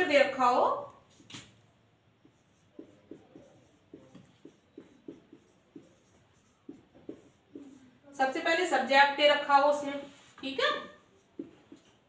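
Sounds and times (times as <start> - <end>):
chalk tapping and scraping on board: 2.2 - 7.9, 10.1 - 12.0.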